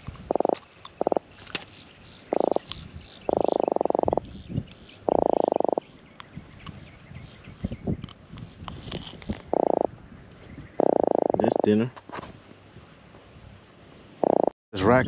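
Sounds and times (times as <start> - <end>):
fish croaking grunts: 0.3 - 1.2, 2.3 - 2.6, 3.3 - 4.2, 5.1 - 5.8, 9.4 - 9.9, 10.8 - 11.8, 14.2 - 14.5.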